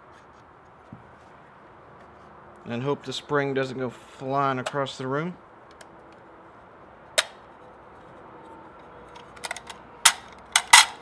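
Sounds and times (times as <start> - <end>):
magazine clicks and knocks: 9.2 - 11.0.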